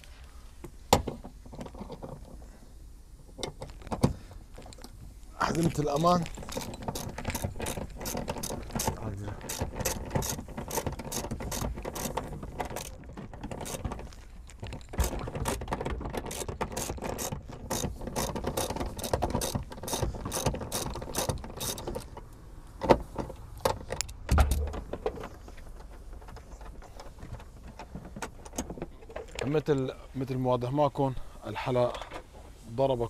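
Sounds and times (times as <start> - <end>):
ratchet wrench clicking: 16.3 - 22.2
low thump: 24.3 - 25.0.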